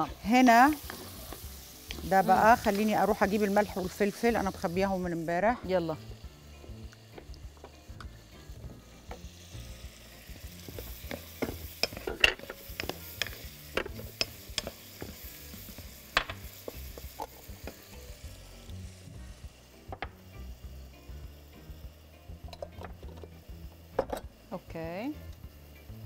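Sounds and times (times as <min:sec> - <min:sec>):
shrimp and onion sizzling: 0:00.0 - 0:26.0
wooden spoon scraping and knocking pan: 0:10.7 - 0:18.0.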